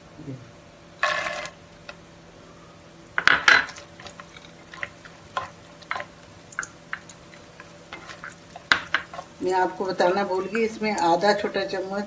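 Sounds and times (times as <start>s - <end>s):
nuts clattering into pan: 1.0s - 1.6s
spatula scraping nuts in pan: 3.8s - 6.3s, 6.9s - 9.6s.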